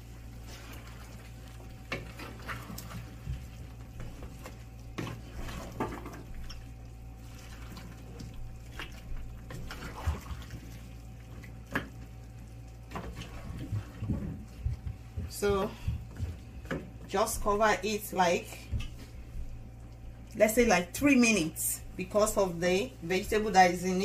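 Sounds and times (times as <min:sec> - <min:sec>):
steady low hum: 0:00.0 - 0:24.0
soup sloshing in a pot: 0:00.1 - 0:14.6
spatula scraping a pot: 0:00.3 - 0:03.2.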